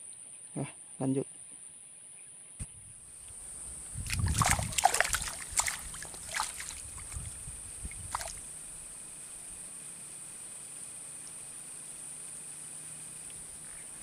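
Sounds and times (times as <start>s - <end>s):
splashing in water: 3.2s - 8.6s
high-pitched insect drone: 3.4s - 14.0s.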